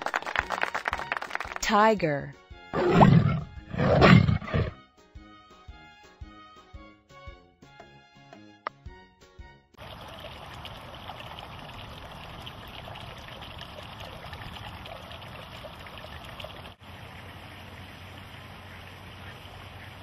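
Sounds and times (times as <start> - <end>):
rushing outdoor background noise: 9.8 - 20.0.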